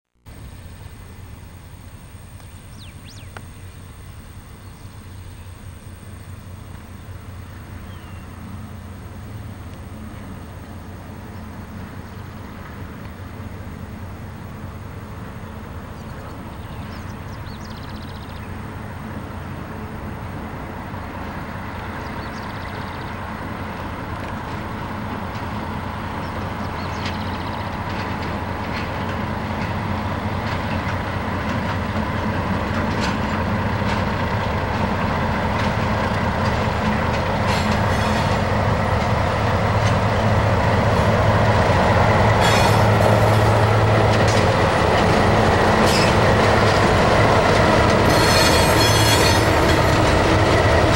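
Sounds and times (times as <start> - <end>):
diesel locomotive engines droning: 0.1 - 50.9
wheels clicking over rail joints: 22.2 - 50.9.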